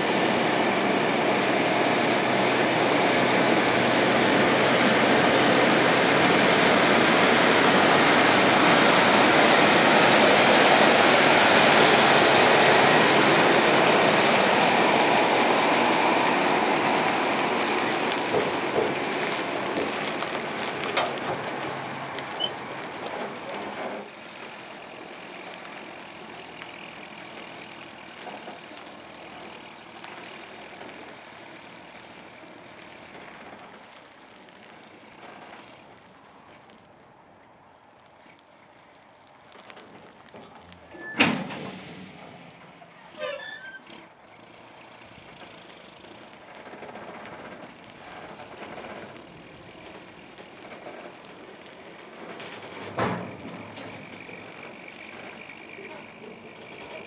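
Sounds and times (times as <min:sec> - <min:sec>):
diesel truck driving past: 0:00.0 - 0:57.0
knocks and rattles: 0:17.8 - 0:22.0, 0:50.6 - 0:57.0.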